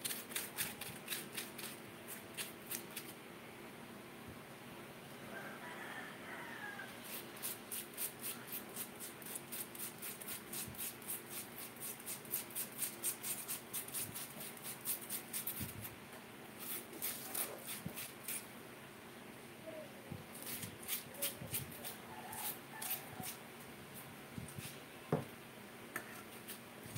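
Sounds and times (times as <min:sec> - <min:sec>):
potato grating on metal grater: 0:00.0 - 0:03.1, 0:07.0 - 0:15.8, 0:16.6 - 0:18.5, 0:20.4 - 0:23.4.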